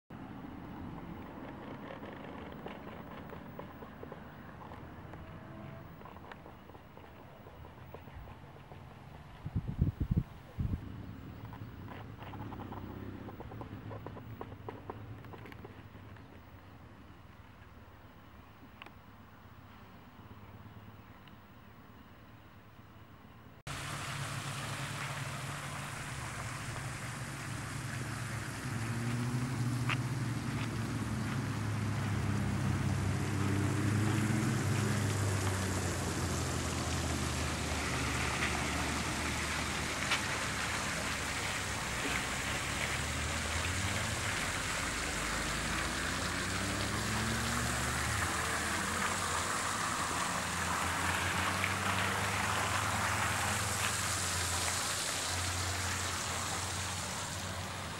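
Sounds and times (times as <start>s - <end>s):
fountain water splashing: 23.7s - 57.9s.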